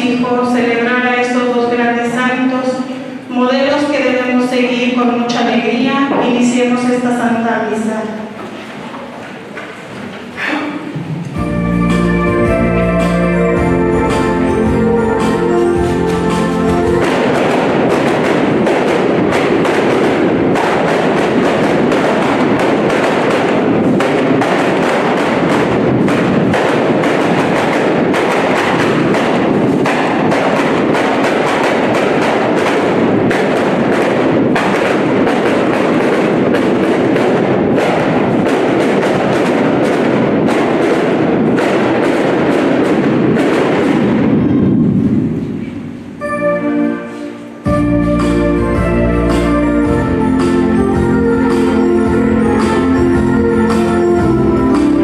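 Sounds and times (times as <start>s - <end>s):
steady drum beat: 11.0s - 33.9s, 47.7s - 55.0s
processional band music: 11.0s - 43.3s, 46.2s - 55.0s
sharp percussion strokes: 11.0s - 55.0s.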